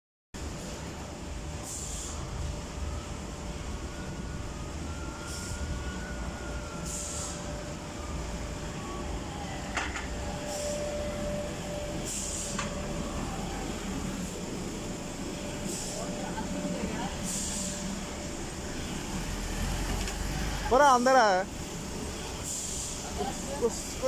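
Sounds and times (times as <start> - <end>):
faint steady whine: 0.4 - 24.0
short hissing: 1.6 - 2.2, 12.0 - 12.6, 17.2 - 17.9, 22.4 - 23.0
forklift engine running: 10.2 - 24.0.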